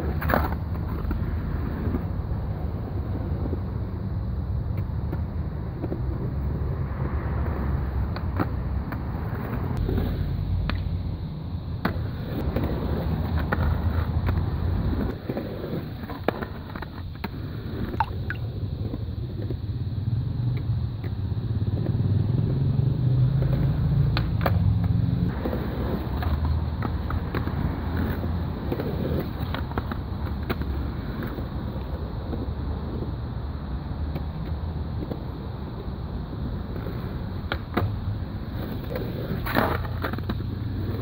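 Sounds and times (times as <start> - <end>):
skateboard wheels rolling on concrete: 0.0 - 41.0
skateboard clacking on concrete: 11.8 - 19.6, 23.5 - 33.2, 36.6 - 41.0.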